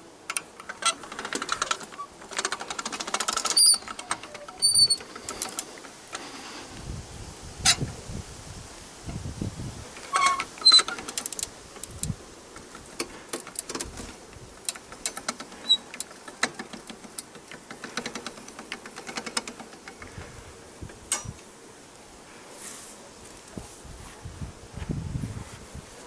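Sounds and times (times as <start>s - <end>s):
metal clicks and rattles: 0.3s - 6.3s, 10.0s - 20.1s
metallic squeak: 3.4s - 5.5s, 10.1s - 11.0s.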